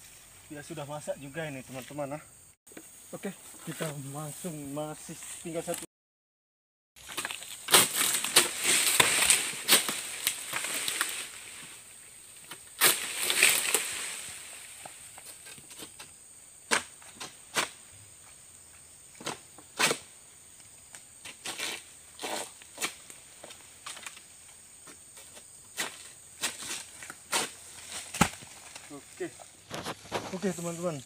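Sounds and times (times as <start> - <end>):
palm fronds rustling: 7.0 - 31.0.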